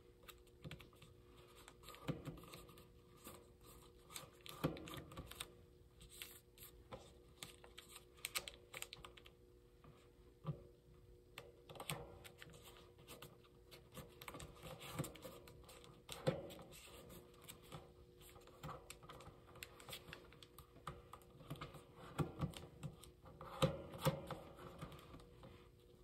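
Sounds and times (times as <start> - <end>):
paper rustling and crinkling: 0.2 - 9.3
paper fold clicks: 7.4 - 9.3.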